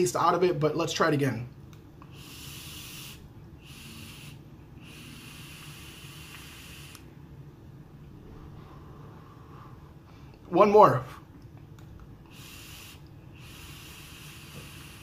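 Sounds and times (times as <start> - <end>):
exhale: 2.0 - 7.1, 8.2 - 10.4, 12.2 - 15.0
vape drag hiss: 2.0 - 7.1, 12.3 - 15.0.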